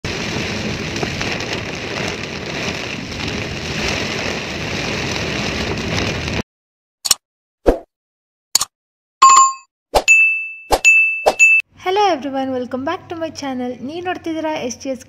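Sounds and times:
heavy rain on car windshield: 0:00.0 - 0:06.4.

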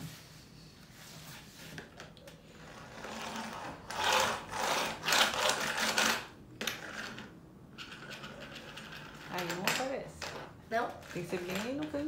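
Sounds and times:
toy rolling on tabletop: 0:02.4 - 0:12.0.

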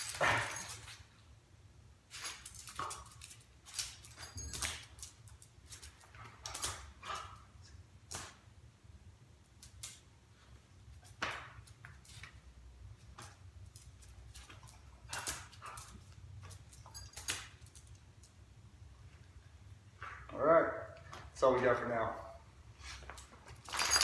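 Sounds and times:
scuffs and rustles on concrete: 0:22.6 - 0:24.0.

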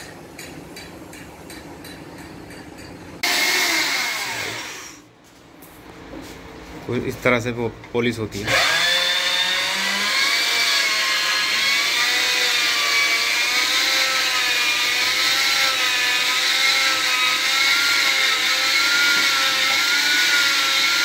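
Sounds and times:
electric drill motor whine: 0:03.2 - 0:05.0, 0:08.5 - 0:21.0.

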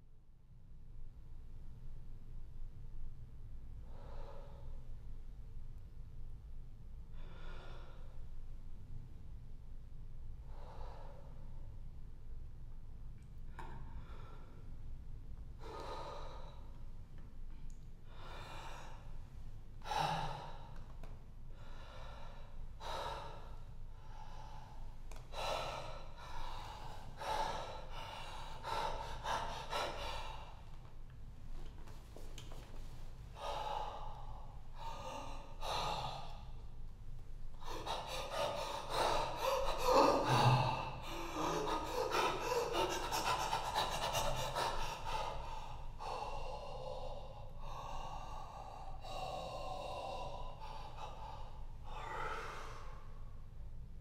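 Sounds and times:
man breathing loudly: 0:15.6 - 0:16.8, 0:21.6 - 0:30.9, 0:33.4 - 0:36.8, 0:37.4 - 0:53.5.

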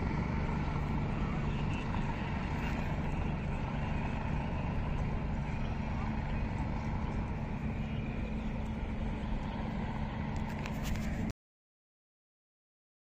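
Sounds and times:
helicopter flying past: 0:00.0 - 0:11.3.

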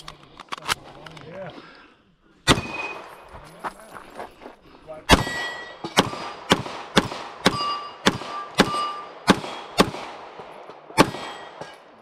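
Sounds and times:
pistol shots: 0:02.4 - 0:03.1, 0:05.1 - 0:11.8
steel targets ringing: 0:05.2 - 0:06.4, 0:07.4 - 0:09.7, 0:11.1 - 0:11.8.

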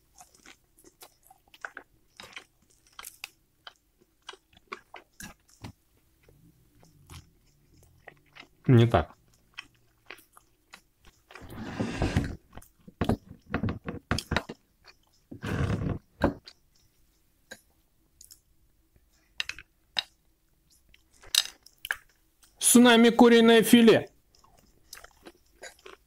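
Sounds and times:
chewing crunchy fried chicken: 0:00.0 - 0:11.4, 0:24.1 - 0:26.0.

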